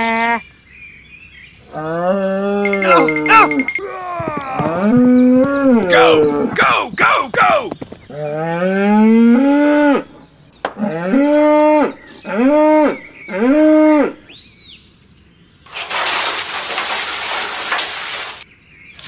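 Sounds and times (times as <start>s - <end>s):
cows mooing: 1.7s - 6.6s, 8.1s - 10.2s, 10.8s - 14.2s.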